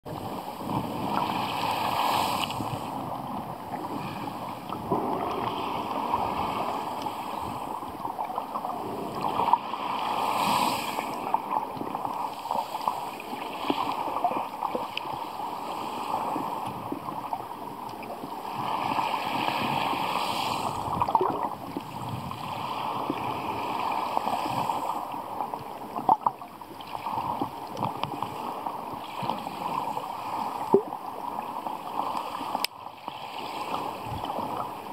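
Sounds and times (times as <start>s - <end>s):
muffled underwater rushing hiss: 8.8s - 11.4s.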